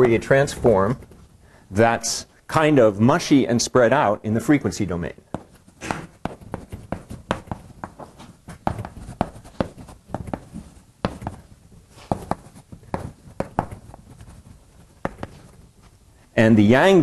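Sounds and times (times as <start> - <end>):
writing on a board: 5.3 - 15.6.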